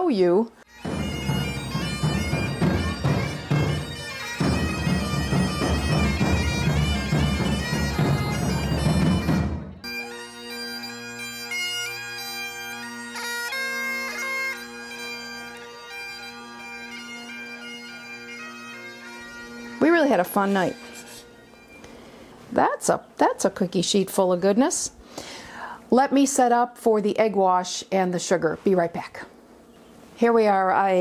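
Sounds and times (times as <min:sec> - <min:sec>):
bagpipes playing a tune: 0:00.6 - 0:22.5.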